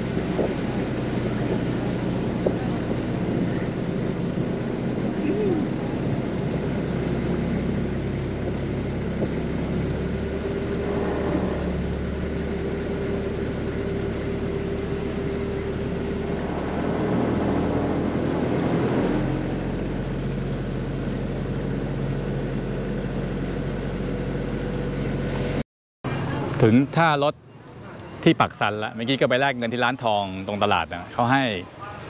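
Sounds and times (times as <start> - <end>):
wind noise: 0.0 - 12.5
water noise: 0.0 - 21.6
boat engine running: 0.0 - 27.2.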